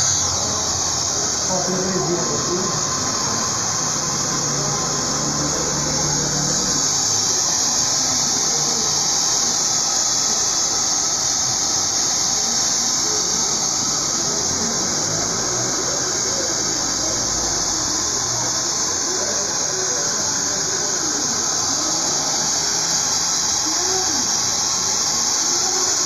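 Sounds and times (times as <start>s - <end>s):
hair dryer running: 0.0s - 26.0s.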